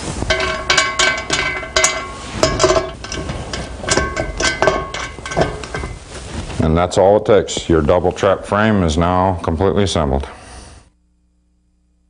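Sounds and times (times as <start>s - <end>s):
metallic clanks with ringing: 0.2s - 6.0s.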